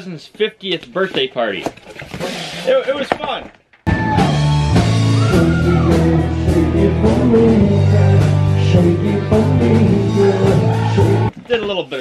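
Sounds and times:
drums: 1.0 - 12.0
bass guitar: 3.9 - 11.3
person singing: 5.1 - 11.3.

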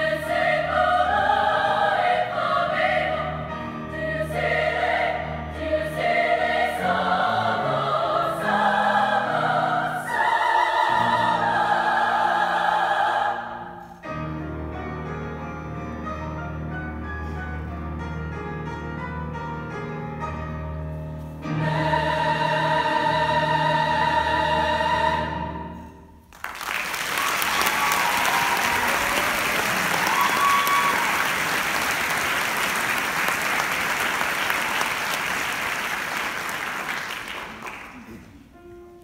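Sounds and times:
choir of young women singing: 0.0 - 14.0, 21.4 - 26.0
piano: 0.0 - 39.0
audience applause: 26.4 - 38.3
audience whooping: 26.8 - 32.0.

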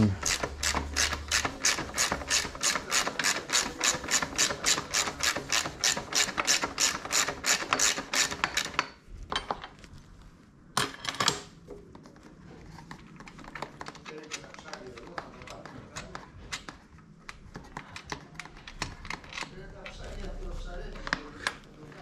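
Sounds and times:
hand ratchet clicking: 0.2 - 8.8.

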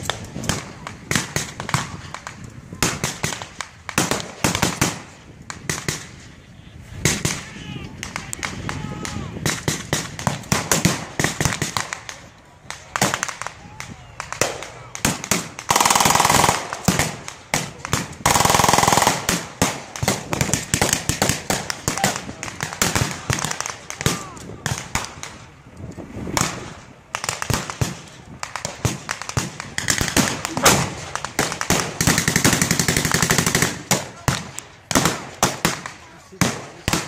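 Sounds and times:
rifle shots: 0.0 - 6.2, 9.4 - 13.5, 14.2 - 25.4, 26.3 - 37.0
machine-gun bursts: 15.7 - 17.0, 18.3 - 19.4.

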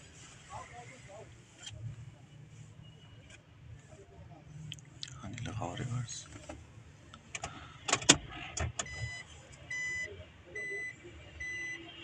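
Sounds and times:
sharp clicks and knocks: 7.2 - 8.9
reverse warning beep: 8.9 - 11.9.

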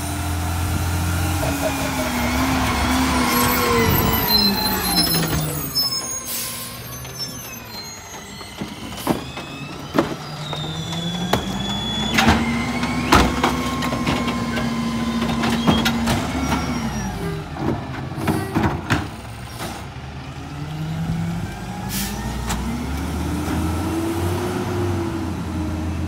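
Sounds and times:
garbage truck engine: 0.0 - 26.0
trash carts knocking on hopper: 8.6 - 16.8, 17.5 - 19.4.

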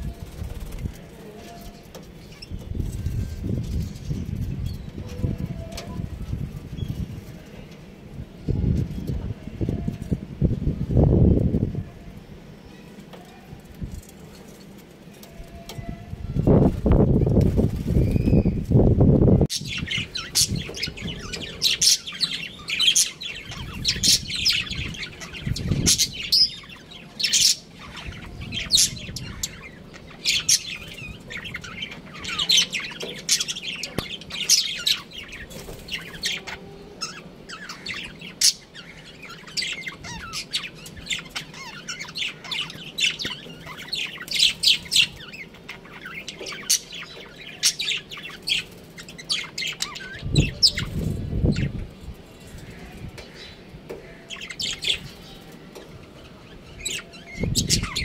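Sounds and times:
budgerigars chirping: 19.5 - 51.8, 56.3 - 58.0.

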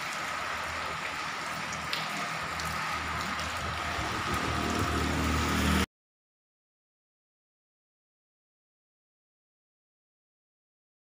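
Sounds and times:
heavy rain on wet street: 0.0 - 5.9
low rumble: 3.3 - 5.8.

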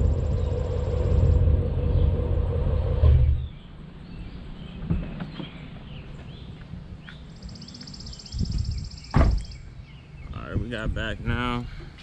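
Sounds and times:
songbirds chirping: 0.0 - 12.0
loud thump: 9.1 - 9.5.

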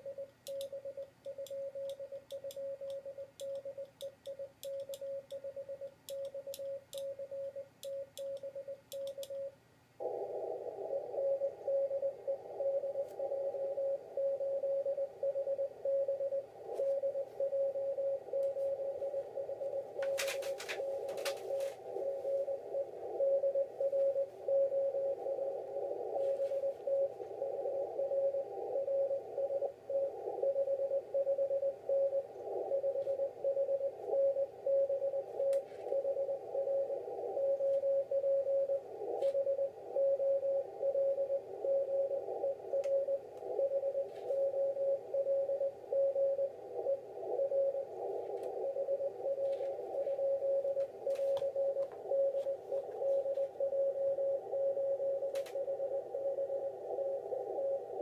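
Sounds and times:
morse code tone: 0.0 - 58.0
radio hiss: 10.0 - 14.0, 18.5 - 31.1, 38.5 - 40.0, 40.7 - 58.0.

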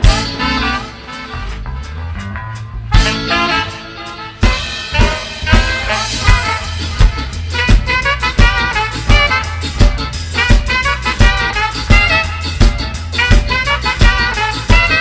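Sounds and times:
ska band playing: 0.0 - 15.0
trumpets and saxophone horn line: 0.0 - 15.0
loud drum hit: 4.4 - 15.0.

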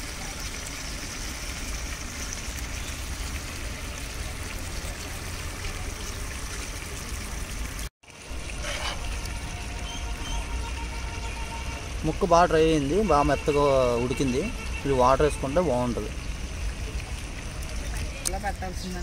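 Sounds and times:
fish sizzling in a pot: 8.1 - 11.5
steel ladle scraping a pot: 8.3 - 9.7.

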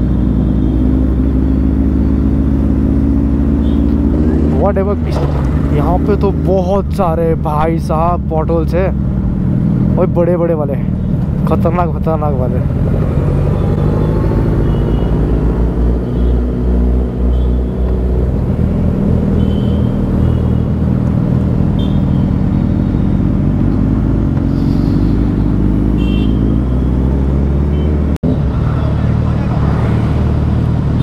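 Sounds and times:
car horn toots: 19.4 - 20.6, 21.7 - 23.2, 25.9 - 26.6.

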